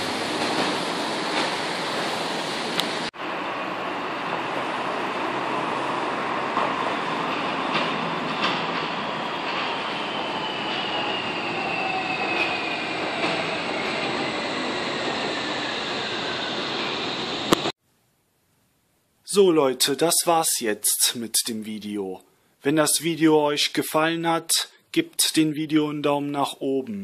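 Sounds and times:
rail car rumble: 0:00.0 - 0:17.7
high whine: 0:02.4 - 0:17.8.

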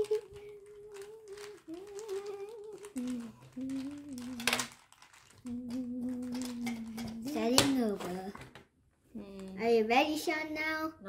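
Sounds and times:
child humming: 0:00.0 - 0:04.7, 0:05.4 - 0:08.4.

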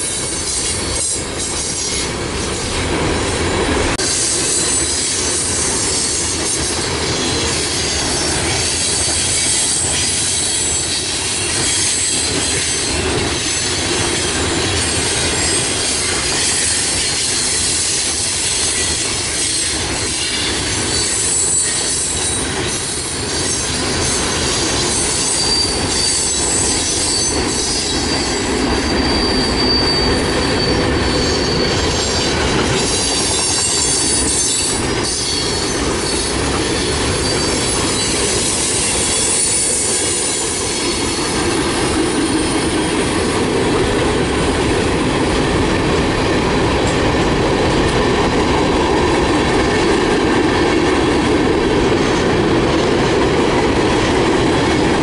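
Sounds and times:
steel train wheels on rails: 0:00.0 - 0:55.0
high wheel squeal: 0:18.5 - 0:41.4.

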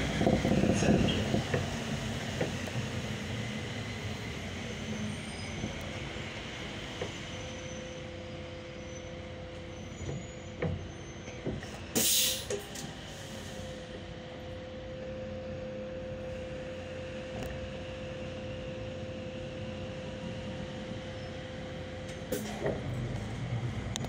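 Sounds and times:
bus engine drone: 0:00.0 - 0:24.0
air hiss release: 0:12.0 - 0:13.6.

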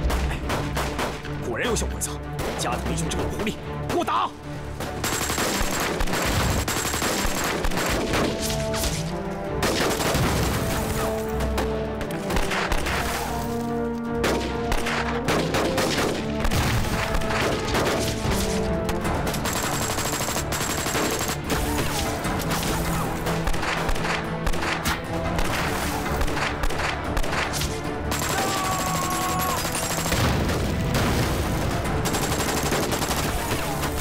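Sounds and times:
background music: 0:00.0 - 0:34.0
heavy gunfire: 0:04.8 - 0:08.5, 0:09.6 - 0:13.3, 0:14.2 - 0:18.5, 0:19.1 - 0:34.0.

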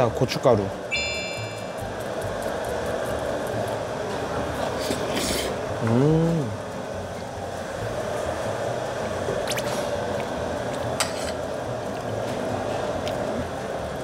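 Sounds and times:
person humming: 0:05.8 - 0:06.6.

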